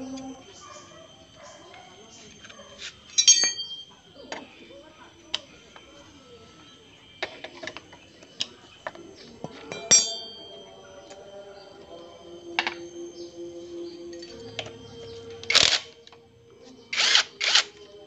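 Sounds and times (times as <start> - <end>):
metal tools clinking on concrete: 0.1 - 4.7, 5.3 - 11.9, 14.0 - 17.9
ringing metal clank: 3.2 - 3.9, 9.4 - 11.2.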